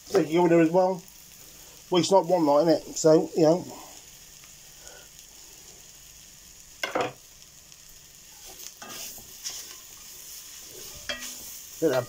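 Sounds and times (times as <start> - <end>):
beef sizzling in a pan: 0.0 - 12.0.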